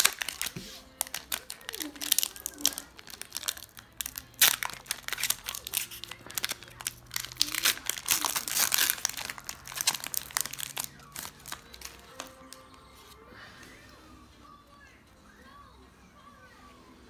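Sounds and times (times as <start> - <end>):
foil wrapper crinkling and tearing: 0.0 - 13.2.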